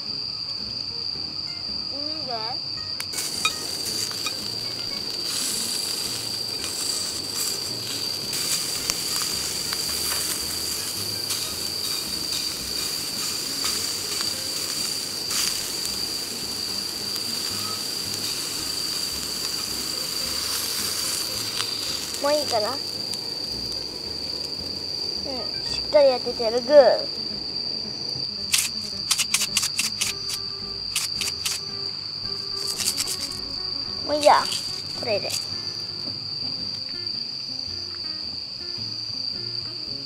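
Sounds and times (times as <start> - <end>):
crickets trilling: 0.0 - 40.0
meat sizzling in a skillet: 1.4 - 27.6, 28.2 - 40.0
chopsticks clicking against pan: 28.6 - 31.7.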